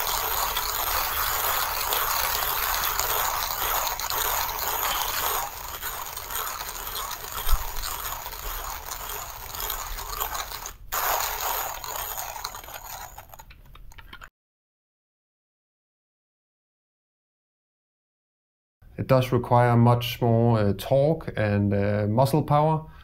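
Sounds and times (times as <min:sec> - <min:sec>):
manual coffee grinder crunching beans: 0:00.0 - 0:14.3.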